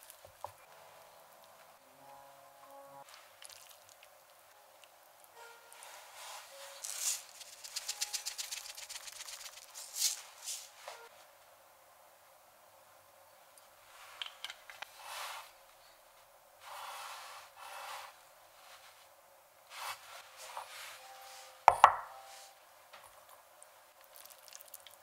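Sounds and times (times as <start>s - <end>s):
rustling: 5.6s - 11.1s
bowl knocking on wood: 21.7s - 22.1s.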